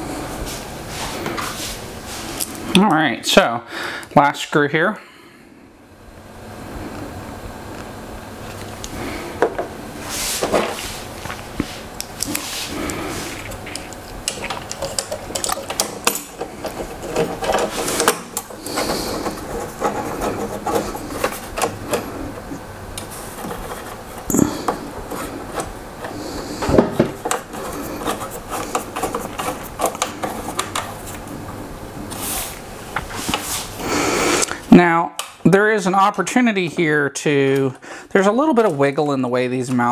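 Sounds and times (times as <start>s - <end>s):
screw clicking and scraping: 13.7s - 22.0s, 27.2s - 30.9s.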